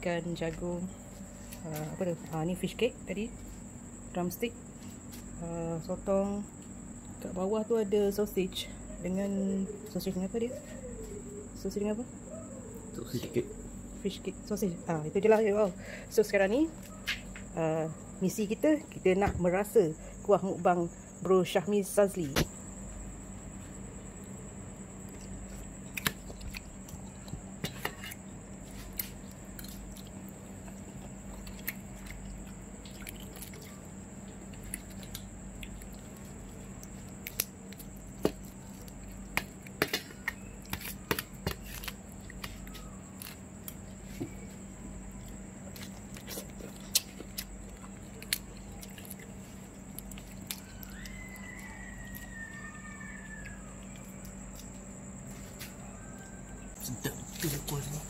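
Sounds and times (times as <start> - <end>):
person chewing and biting: 25.1 - 27.4, 28.7 - 39.8, 45.7 - 52.3.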